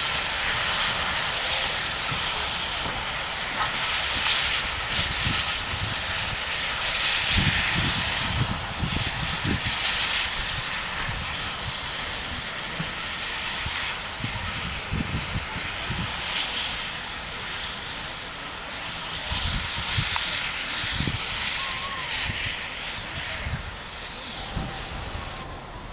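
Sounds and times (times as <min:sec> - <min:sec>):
steam engine exhaust beats: 0:00.0 - 0:25.9
steam hiss: 0:00.0 - 0:25.9.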